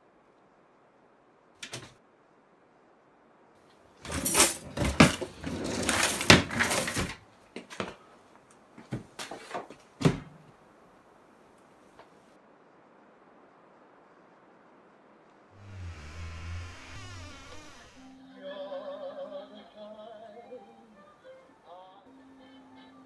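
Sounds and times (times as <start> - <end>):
things knocking in cupboard: 4.0 - 7.9, 8.9 - 10.4
bags rustling: 4.0 - 8.0
thump: 10.0 - 10.4.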